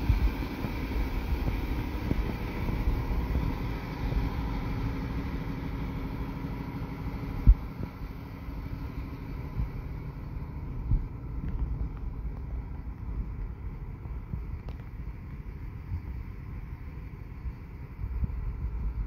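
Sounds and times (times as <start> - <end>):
wind buffeting microphone: 0.0 - 6.2, 10.7 - 19.0
faint steady hum: 0.0 - 19.0.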